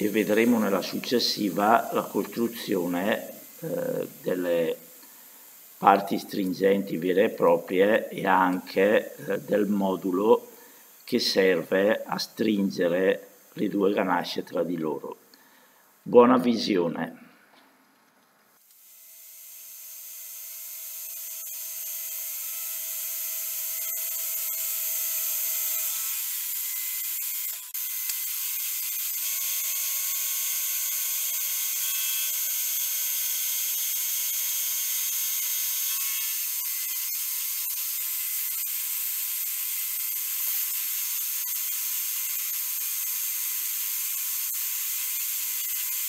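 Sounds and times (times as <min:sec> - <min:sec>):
milling machine cutting hiss: 0:00.0 - 0:14.1.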